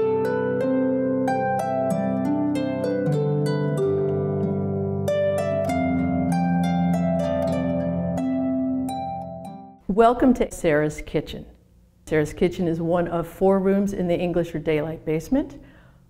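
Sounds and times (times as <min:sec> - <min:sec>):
harp playing plucked notes: 0:00.0 - 0:09.8.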